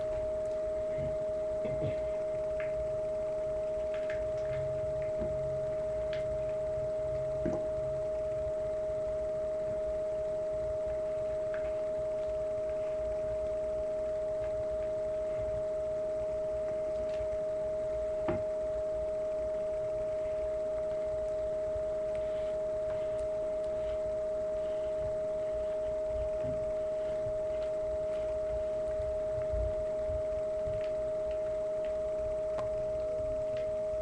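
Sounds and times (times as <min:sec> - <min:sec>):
soft low bumps: 0:00.0 - 0:08.9, 0:22.2 - 0:34.0
faint second tone: 0:00.0 - 0:34.0
steady hum: 0:00.0 - 0:34.0.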